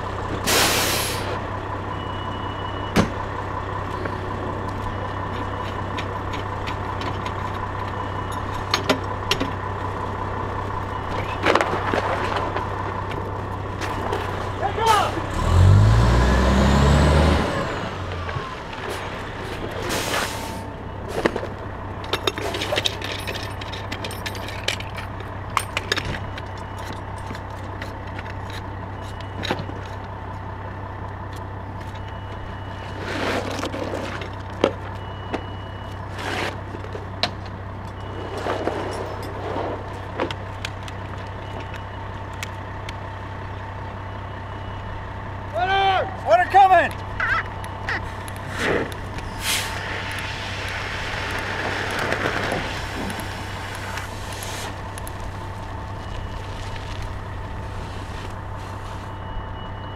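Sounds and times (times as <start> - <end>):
fire engine idling: 0.0 - 15.5, 17.5 - 59.9
metal clanks and scrapes: 38.2 - 39.9.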